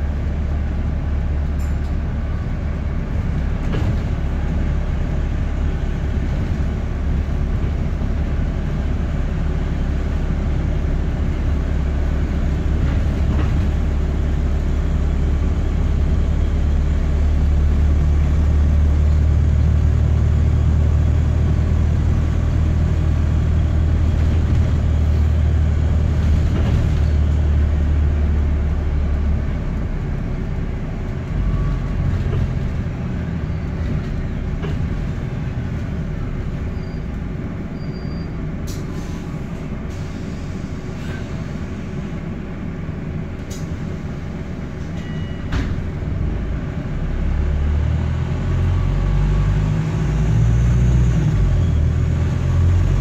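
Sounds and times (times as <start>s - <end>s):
deep bus engine drone: 0.0s - 53.0s
road noise: 0.0s - 53.0s.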